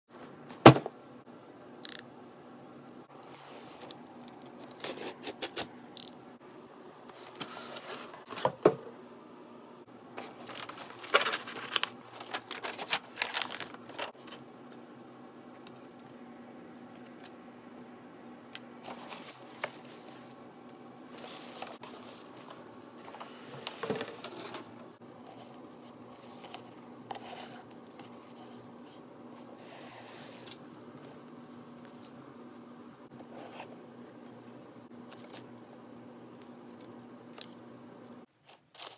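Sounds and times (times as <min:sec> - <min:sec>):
packing paper crinkling: 0:10.2 - 0:14.4.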